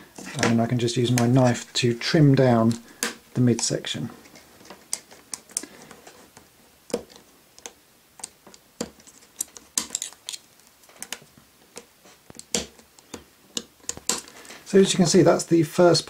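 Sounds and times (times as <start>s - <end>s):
knife blade scraping plastic rod: 8.9s - 11.2s.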